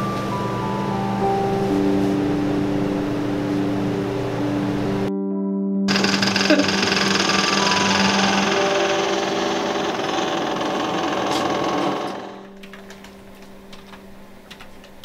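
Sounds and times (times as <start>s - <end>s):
background music sustained notes: 0.0s - 15.0s
computer keyboard typing: 5.9s - 15.0s.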